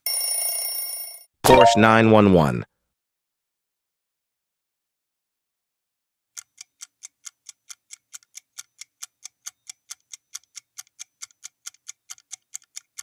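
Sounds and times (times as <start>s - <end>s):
fast clock ticking: 6.4s - 13.0s.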